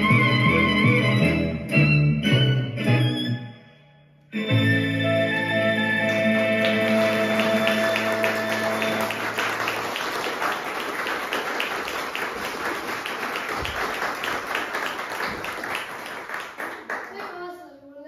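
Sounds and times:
audience applause: 6.0s - 17.5s.

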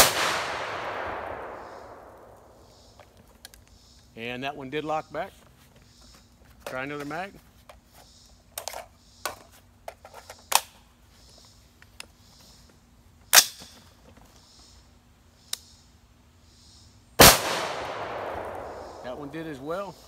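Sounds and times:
rifle shot with echo: 0.0s - 3.0s, 17.2s - 19.8s.

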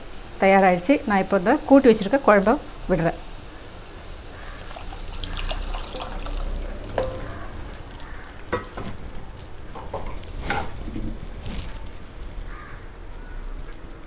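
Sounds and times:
gravy pouring into pot: 4.5s - 9.7s.

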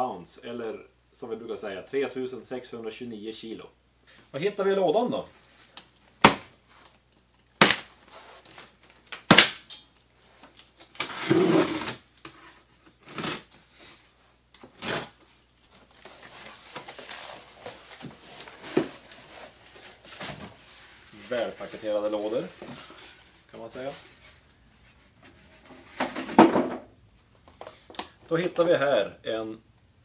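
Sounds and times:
cardboard and tape rustling: 5.3s - 14.0s, 14.6s - 26.6s
plastic strapping snapping: 9.0s - 12.4s.

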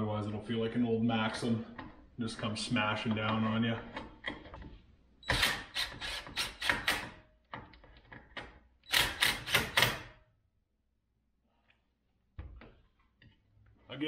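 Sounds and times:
impact driver hammering bolts: 5.2s - 10.2s.

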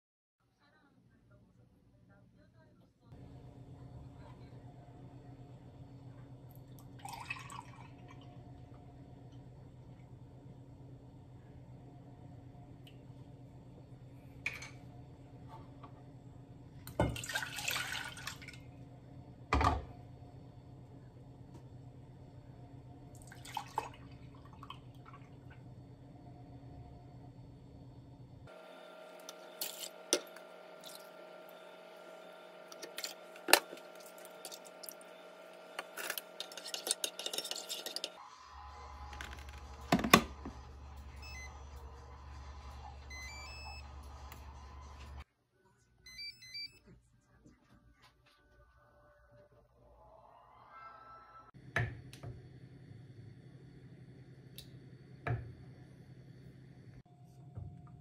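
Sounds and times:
low steady hum: 0.5s - 49.4s
utensil clinking against metal pot: 36.0s - 38.2s.

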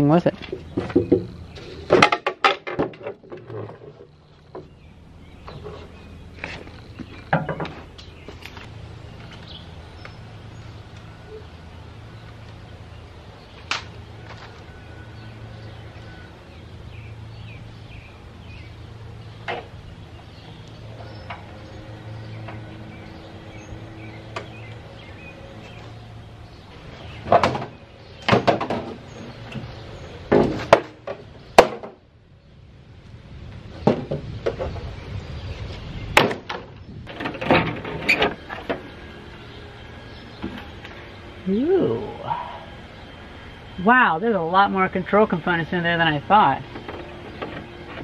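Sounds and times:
plastic panel knocking and clunking: 0.5s - 3.8s, 7.3s - 7.8s
steady low hum: 3.0s - 48.0s.

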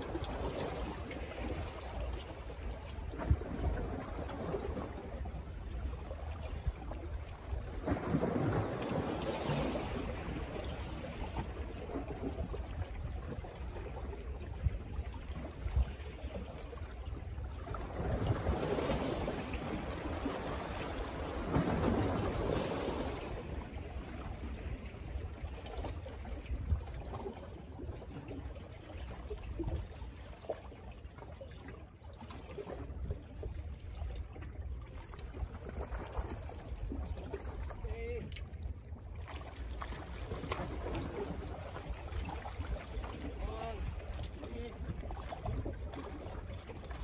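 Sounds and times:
wind rumbling on microphone: 0.0s - 30.0s.

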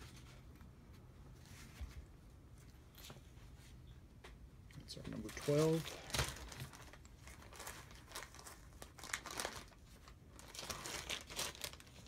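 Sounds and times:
plastic bag crinkling: 5.2s - 12.0s.

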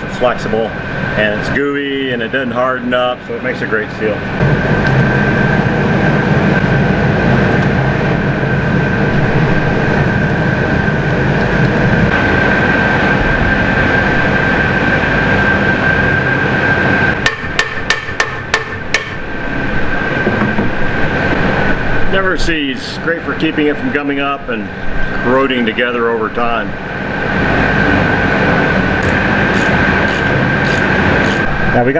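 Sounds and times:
mechanical hum with high whine: 0.0s - 31.9s
hammer tapping on metal: 17.2s - 19.2s.

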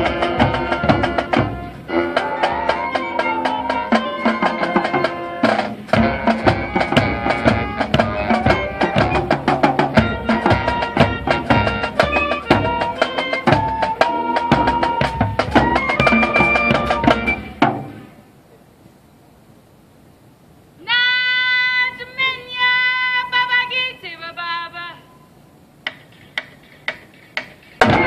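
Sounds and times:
drumline beat: 0.0s - 18.1s, 25.8s - 28.0s
brass and woodwinds holding chords: 0.0s - 18.3s.

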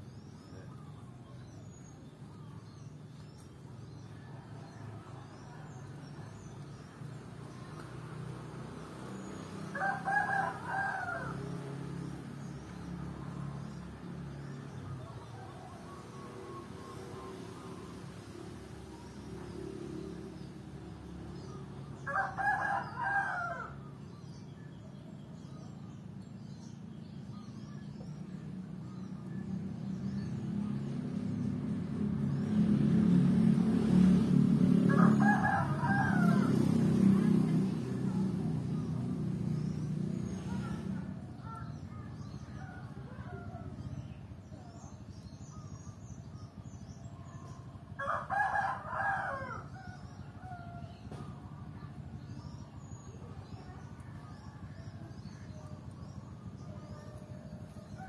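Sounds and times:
small birds chirping: 0.0s - 33.8s, 34.9s - 58.0s
vehicle engine hum: 0.0s - 58.0s
rooster crowing: 9.7s - 11.6s, 22.1s - 23.8s, 34.9s - 36.8s, 48.0s - 50.0s.

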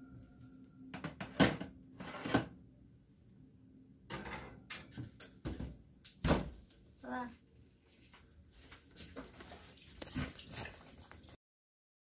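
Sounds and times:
baking pans clattering on oven rack: 4.1s - 5.2s.

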